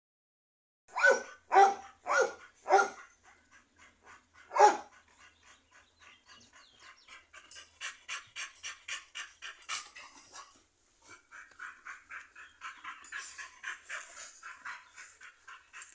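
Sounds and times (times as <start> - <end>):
dog barking: 0.9 - 3.1, 4.5 - 4.9
dog panting: 1.6 - 15.9.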